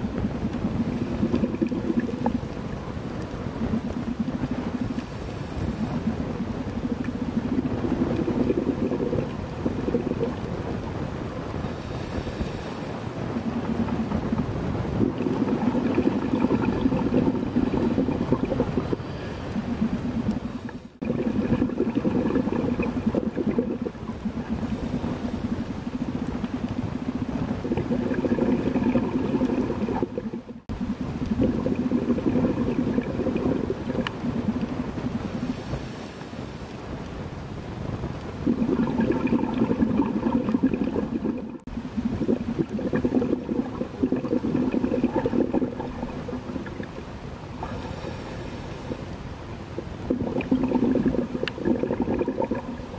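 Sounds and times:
exhaled air bubbling: 0:00.0 - 0:52.9
regulator inhalation hiss: 0:11.7 - 0:13.2, 0:35.2 - 0:36.8, 0:47.6 - 0:49.2.

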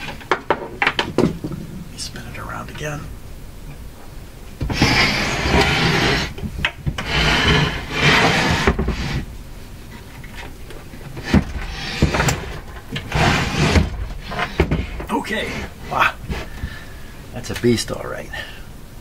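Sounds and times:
wood scraping on wood: 0:04.6 - 0:16.9.

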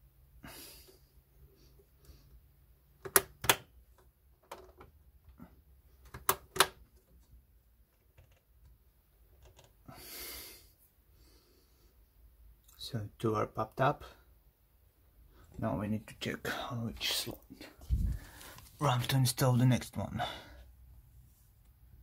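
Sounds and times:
plastic latches snapping open: 0:03.0 - 0:03.7, 0:06.0 - 0:06.8.

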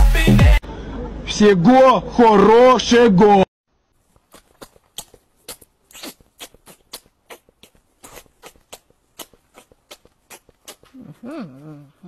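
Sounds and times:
cat gnawing and licking paw: 0:04.0 - 0:11.2.

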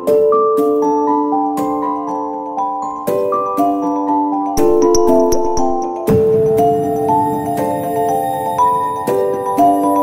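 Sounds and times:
light tune of bell-like notes: 0:06.8 - 0:10.0.

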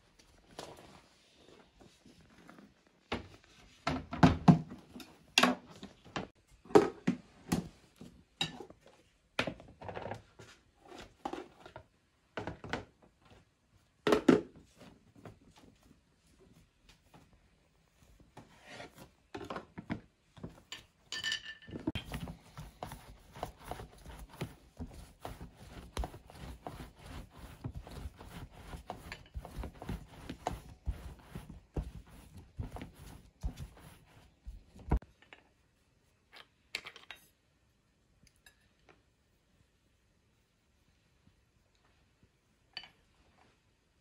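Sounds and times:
rapid rubbing and scraping strokes: 0:22.0 - 0:35.0.

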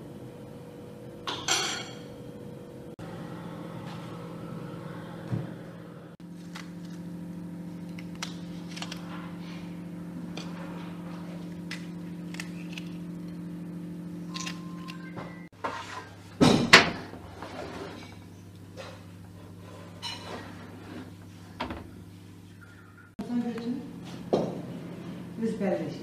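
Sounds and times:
kitchen appliance motor humming: 0:02.9 - 0:15.5.

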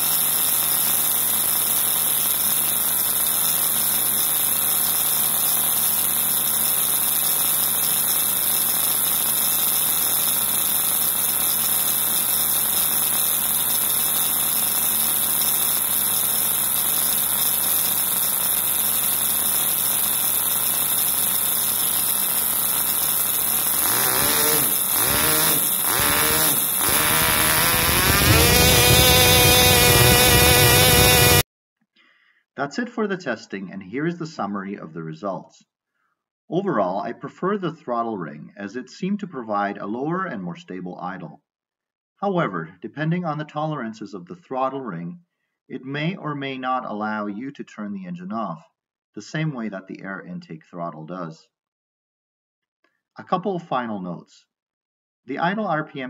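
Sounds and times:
small model engine buzzing: 0:00.0 - 0:31.5.

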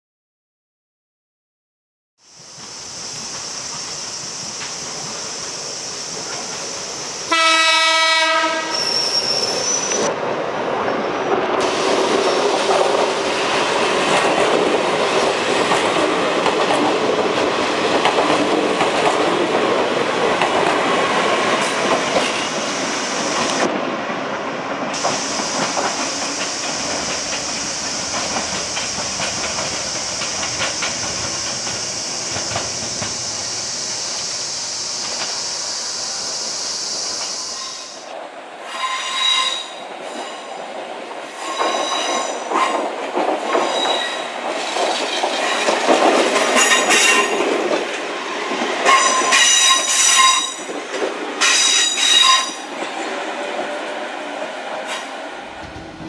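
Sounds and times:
train air horn blast: 0:07.3 - 0:08.9
train wheels clattering over rail joints: 0:25.0 - 0:33.3, 0:41.2 - 0:53.0.

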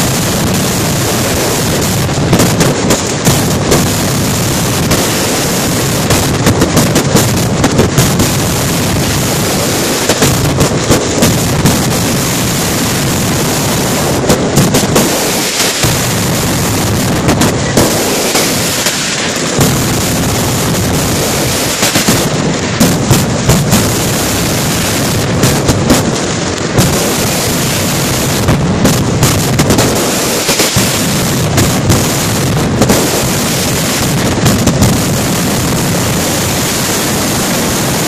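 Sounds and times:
firecrackers crackling: 0:00.0 - 0:38.0
sharp bangs: 0:00.0 - 0:38.0.

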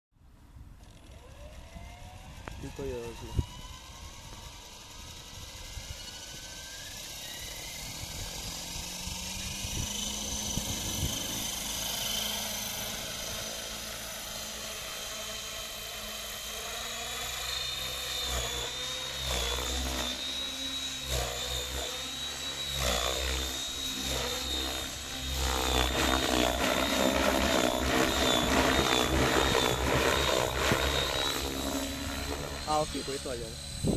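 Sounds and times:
model helicopter motor whine: 0:00.5 - 0:33.9
rotor blades thumping: 0:21.1 - 0:33.0.

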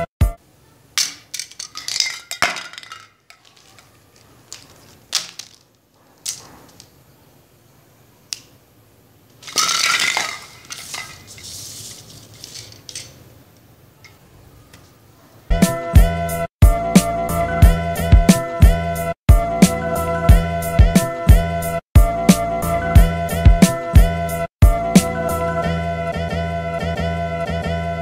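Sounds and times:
tools clicking and clinking on table: 0:01.0 - 0:05.6, 0:12.3 - 0:13.2
scraping rustle: 0:01.5 - 0:07.0, 0:09.4 - 0:13.2.

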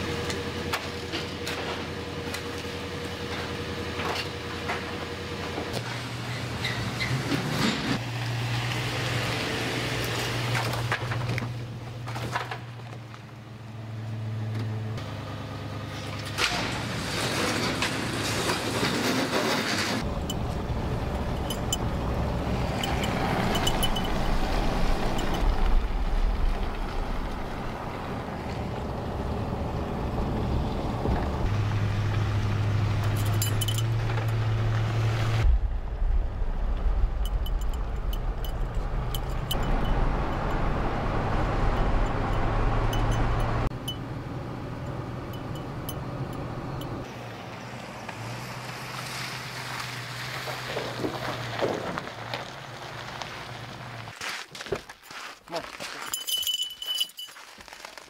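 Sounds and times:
road rumble: 0:00.0 - 0:58.0
truck engine hum: 0:19.8 - 0:54.1.

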